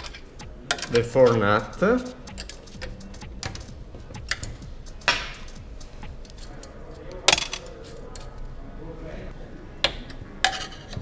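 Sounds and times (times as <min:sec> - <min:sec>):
ringing metal knocks: 0:00.0 - 0:06.4
wrench clicking on metal nuts: 0:00.0 - 0:06.6.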